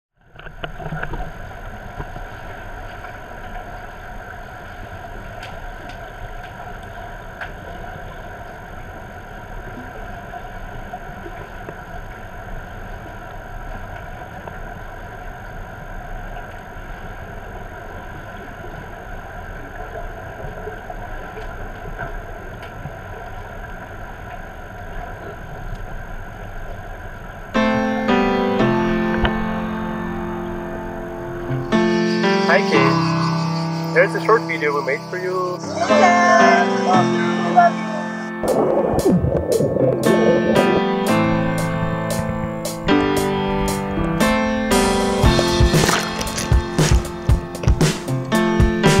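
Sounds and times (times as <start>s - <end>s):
underwater hum with steady tones: 0.2s - 48.9s.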